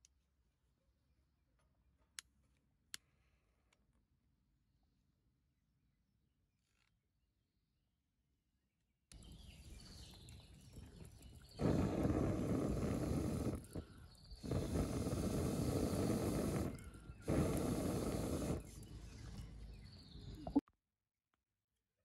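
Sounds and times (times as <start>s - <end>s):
air puffs through metal pipe: 11.6s - 18.8s.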